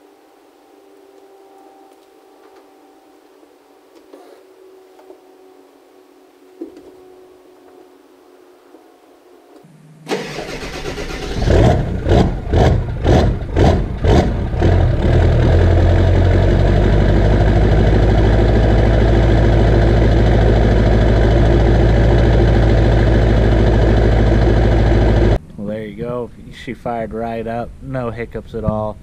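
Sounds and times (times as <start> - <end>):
diesel engine starting and idling: 10.1 - 25.4.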